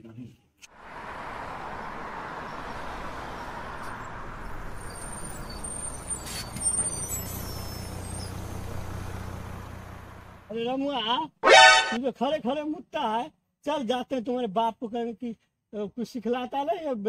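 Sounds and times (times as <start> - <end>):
vehicle engine hum: 0.7 - 10.5
road ambience hiss: 0.7 - 10.6
faint high peeps: 11.4 - 12.0.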